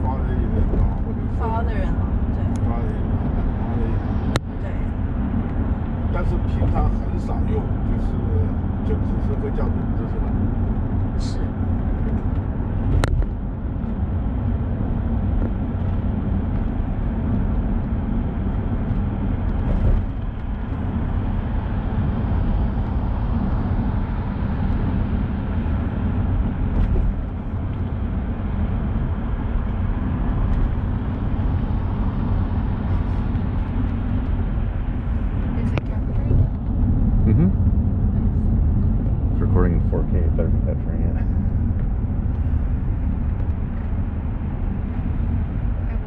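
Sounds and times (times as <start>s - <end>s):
road and engine noise inside vehicle: 0.0s - 46.0s.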